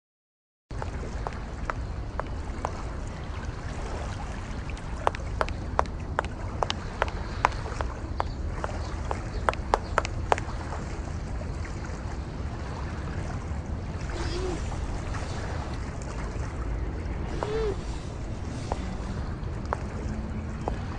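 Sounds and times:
low background rumble: 0:00.7 - 0:20.9
high heels clicking on a bridge: 0:04.8 - 0:10.7, 0:18.2 - 0:20.9.

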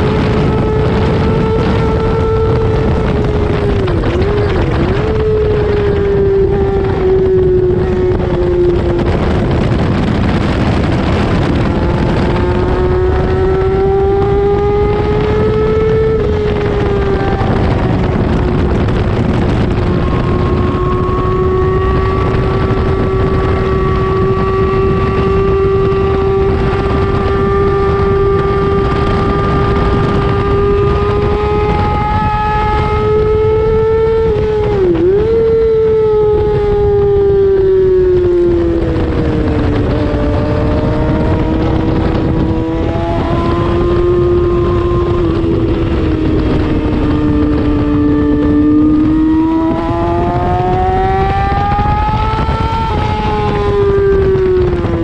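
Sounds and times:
motorcycle engine at high revs: 0:00.0 - 0:55.0
wind rushing over microphone: 0:00.0 - 0:55.0.

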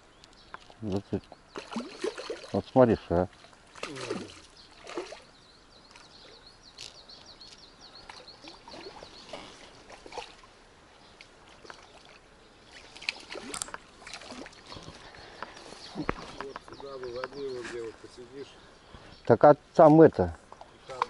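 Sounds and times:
fish splashing at water surface: 0:01.6 - 0:02.6, 0:03.7 - 0:05.3
rustles: 0:03.4 - 0:21.0.

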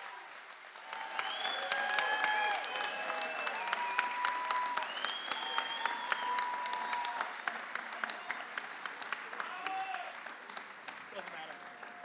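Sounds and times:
audience clapping: 0:00.0 - 0:12.0
audience cheering: 0:00.8 - 0:08.7, 0:09.3 - 0:10.2.

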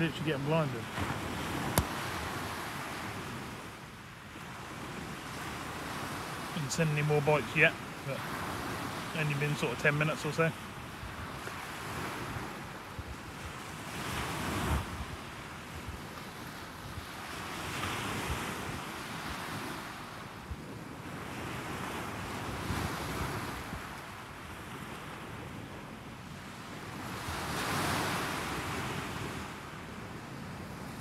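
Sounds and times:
waves breaking on sandy beach: 0:00.0 - 0:31.0
wind rumbling on microphone: 0:10.6 - 0:31.0.

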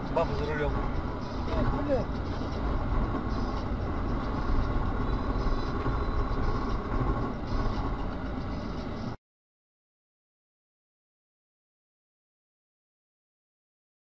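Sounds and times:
vehicle road and engine rumble: 0:00.0 - 0:09.2.

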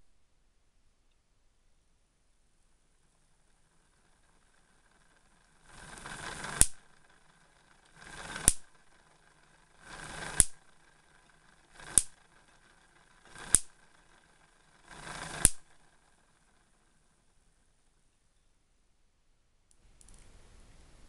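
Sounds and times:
electric spark snaps: 0:06.5 - 0:06.9, 0:08.3 - 0:08.7, 0:10.1 - 0:10.6, 0:11.8 - 0:12.2, 0:13.4 - 0:13.8, 0:15.3 - 0:15.7.

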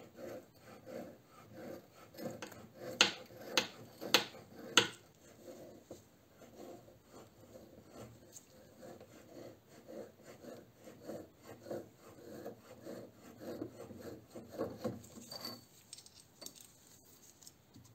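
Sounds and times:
chain clinking against metal pipe: 0:15.0 - 0:16.8.

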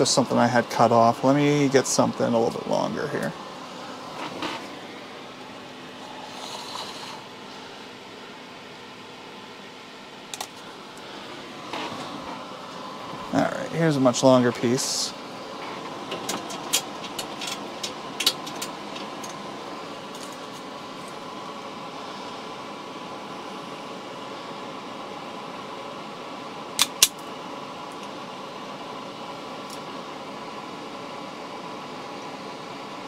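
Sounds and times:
fume extractor fan whirring: 0:00.0 - 0:33.0
wire being handled: 0:04.2 - 0:04.7
wire stripper snapping: 0:26.8 - 0:27.2.

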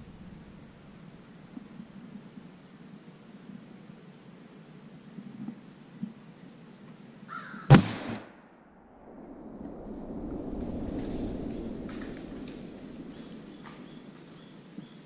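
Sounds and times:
gunshot with echo: 0:07.7 - 0:08.8
low rustling: 0:08.8 - 0:14.8.

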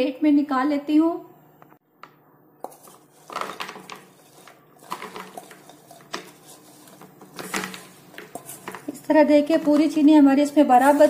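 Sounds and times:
pieces sliding onto plate: 0:02.6 - 0:10.0, 0:10.8 - 0:11.0
pot rim scraping against plate: 0:02.6 - 0:10.0, 0:10.7 - 0:11.0.

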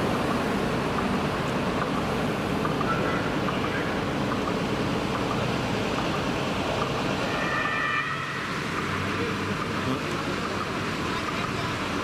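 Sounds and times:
vehicle engine and road noise: 0:00.0 - 0:12.0
faint siren: 0:07.2 - 0:09.3.

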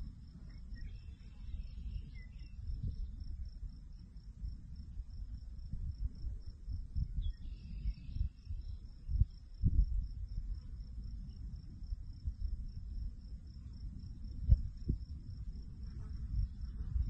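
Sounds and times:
crickets chirping: 0:00.0 - 0:17.0
wind buffeting microphone: 0:00.0 - 0:17.0
bird chirping: 0:00.5 - 0:03.2, 0:07.1 - 0:08.8.

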